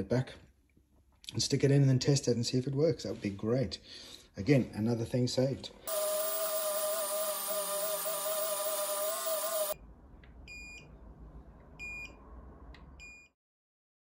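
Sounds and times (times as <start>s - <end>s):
rotary tool whining: 5.9s - 9.8s.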